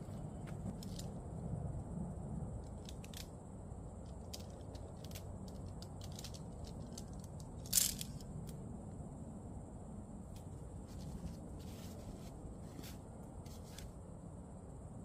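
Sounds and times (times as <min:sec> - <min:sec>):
light rustling: 0:10.4 - 0:14.0
louder rustle or scrape: 0:10.9 - 0:14.0.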